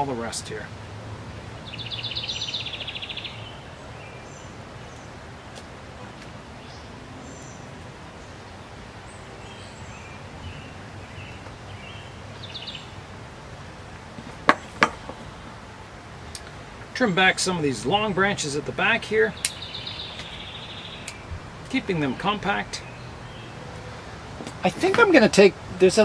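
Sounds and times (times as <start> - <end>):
small birds chirping: 1.4 - 15.4, 16.1 - 26.0
sharp clicks: 19.4 - 19.6.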